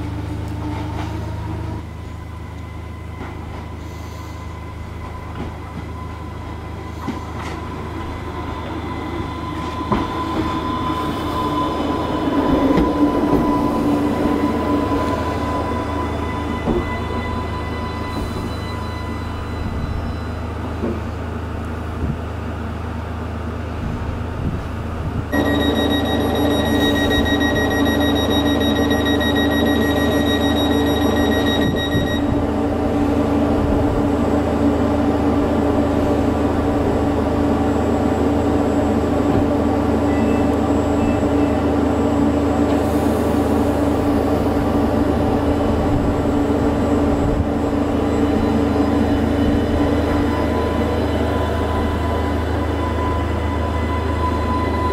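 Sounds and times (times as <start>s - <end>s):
train equipment humming: 0.0s - 54.9s
high steady tones: 25.3s - 32.3s
electrical whine: 25.3s - 32.4s.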